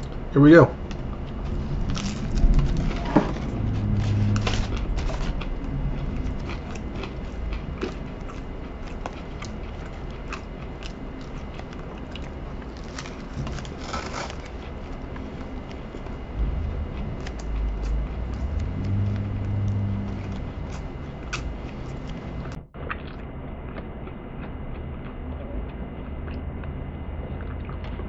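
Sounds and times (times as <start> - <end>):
close-up chewing: 0.0 - 28.0.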